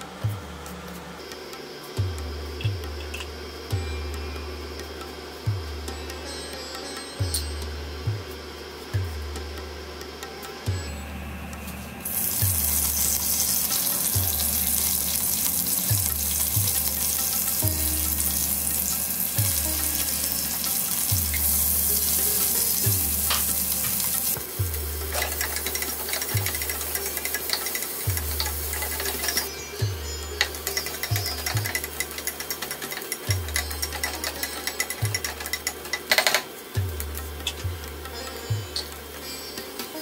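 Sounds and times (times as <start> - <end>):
oil sizzling in a pan: 12.0 - 36.8.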